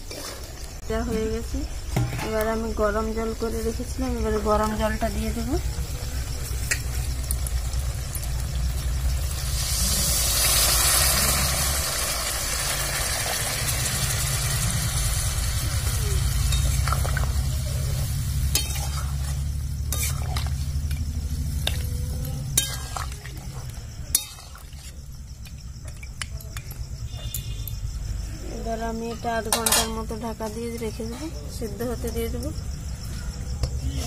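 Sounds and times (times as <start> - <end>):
water hissing in hot pan: 5.2 - 25.1
metal spatula clinking on pan: 18.5 - 19.1, 29.5 - 30.0.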